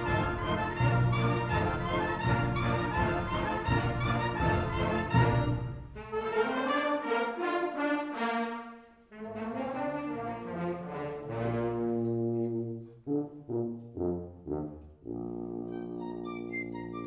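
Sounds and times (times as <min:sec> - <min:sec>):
wind band playing: 0:00.0 - 0:17.0.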